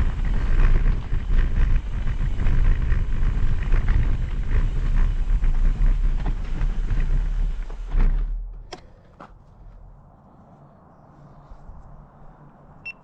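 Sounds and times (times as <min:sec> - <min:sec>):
wind buffeting microphone: 0:00.0 - 0:08.2
bike rattling on dirt trail: 0:00.0 - 0:08.5.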